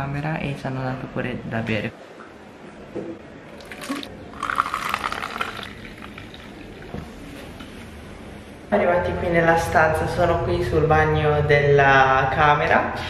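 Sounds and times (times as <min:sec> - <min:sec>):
soft drink pouring into cup: 0:03.6 - 0:07.7.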